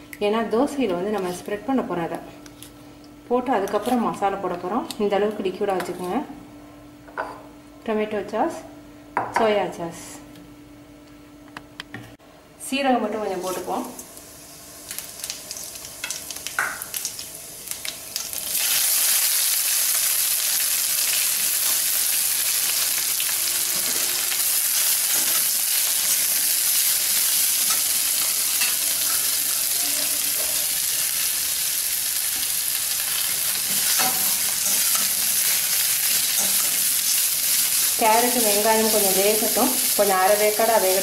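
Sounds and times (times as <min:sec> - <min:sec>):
onions sizzling in a pan: 0:13.4 - 0:41.0
seeds crackling in hot oil: 0:13.4 - 0:41.0.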